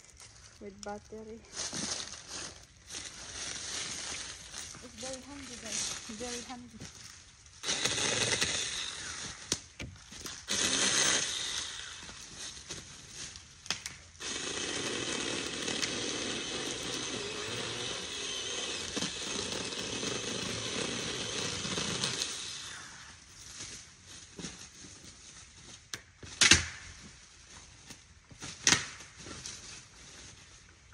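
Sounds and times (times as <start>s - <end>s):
handheld chainsaw cutting brush: 0.6s - 25.2s.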